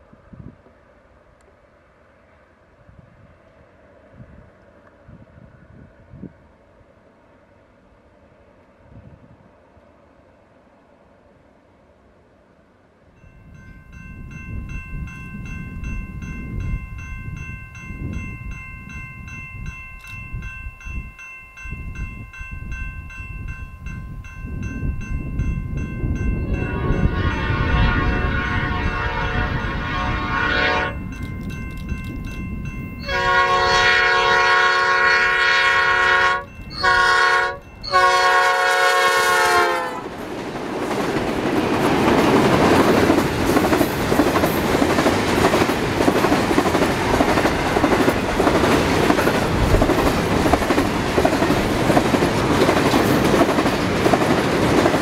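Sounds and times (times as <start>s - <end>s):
train engine rumble: 0.0s - 55.0s
level crossing bells ringing: 13.2s - 27.7s, 30.9s - 33.8s
train wheel noise: 13.2s - 55.0s
train horn blasts: 26.5s - 31.1s, 33.0s - 40.1s.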